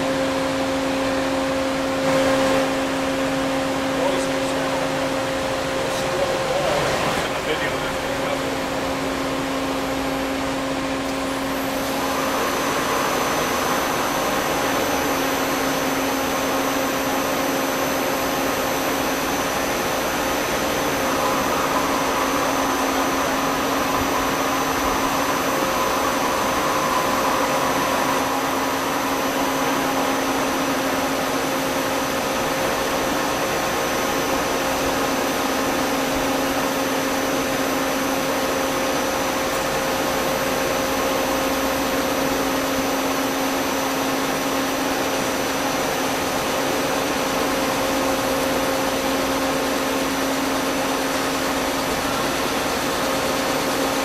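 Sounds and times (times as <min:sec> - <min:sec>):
thin high whine: 0:00.0 - 0:54.0
welding machine whirring: 0:08.5 - 0:37.0.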